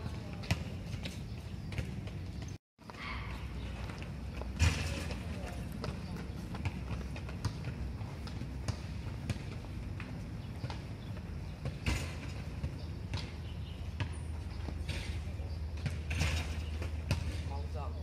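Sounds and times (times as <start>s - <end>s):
footsteps on rubber track: 0.0s - 11.8s.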